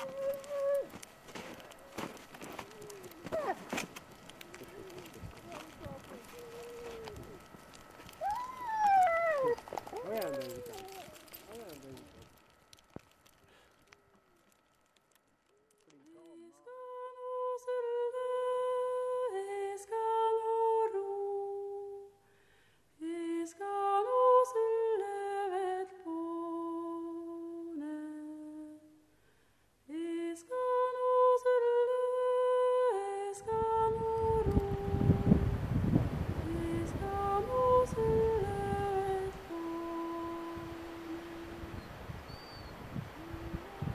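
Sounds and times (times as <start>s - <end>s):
person humming a slow melody: 0.0s - 3.8s, 4.4s - 12.3s, 15.8s - 22.2s, 23.0s - 29.1s, 29.9s - 35.8s, 36.4s - 43.9s
wind buffeting microphone: 2.9s - 11.0s, 33.4s - 39.6s, 40.3s - 43.9s.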